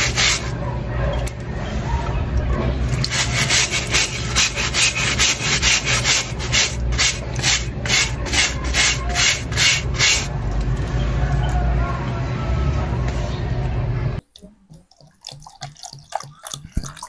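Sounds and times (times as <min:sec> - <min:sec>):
brush scrubbing a sneaker: 0:00.0 - 0:00.5, 0:03.0 - 0:10.3.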